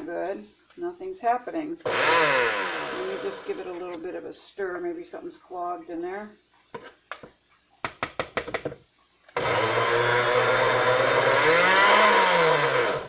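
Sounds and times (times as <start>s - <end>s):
blender motor humming: 1.8s - 3.7s, 9.4s - 13.0s.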